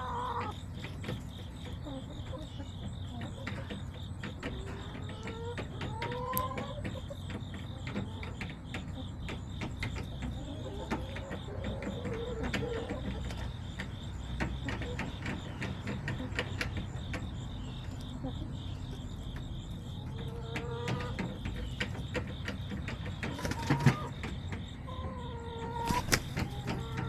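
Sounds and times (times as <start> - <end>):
hens calling: 0.0 - 27.0
insects chirping: 0.0 - 27.0.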